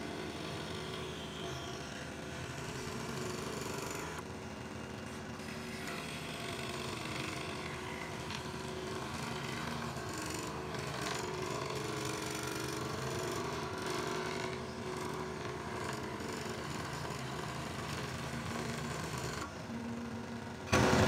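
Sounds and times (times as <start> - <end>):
electric scroll saw cutting wood: 0.0 - 21.0.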